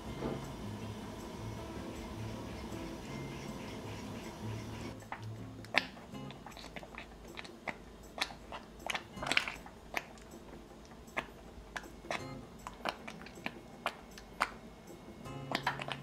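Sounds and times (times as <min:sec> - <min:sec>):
spatula stirring thick sauce: 0:01.8 - 0:05.2.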